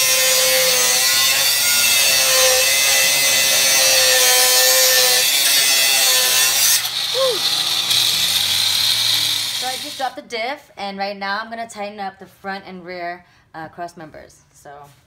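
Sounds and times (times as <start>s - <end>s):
angle grinder cutting steel: 0.0s - 10.1s.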